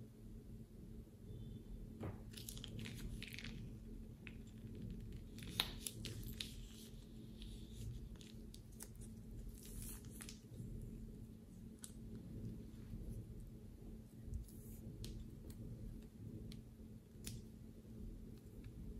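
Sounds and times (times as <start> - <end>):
sticky slime squishes: 2.0 - 18.9
plastic bag crinkling: 2.3 - 10.9.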